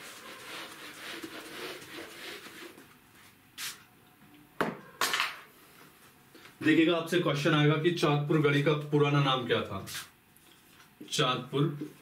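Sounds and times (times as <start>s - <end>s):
duster wiping whiteboard: 0.0s - 3.8s.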